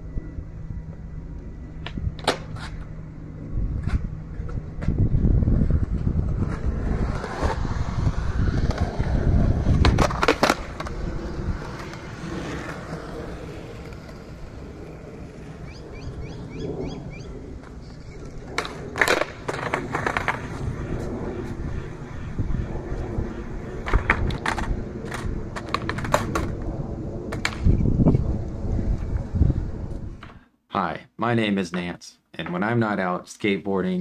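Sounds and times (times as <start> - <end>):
skateboard wheels rolling on concrete: 0.0 - 30.4
skateboard clacks and scrapes: 2.2 - 2.9, 5.6 - 15.6, 17.6 - 20.7, 23.4 - 26.7.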